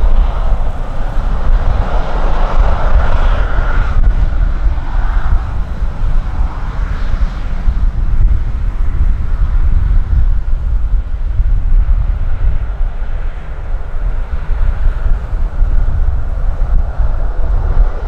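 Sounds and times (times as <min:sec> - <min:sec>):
jet engine whine: 0:00.0 - 0:18.0
wind rumble on microphone: 0:00.0 - 0:18.0.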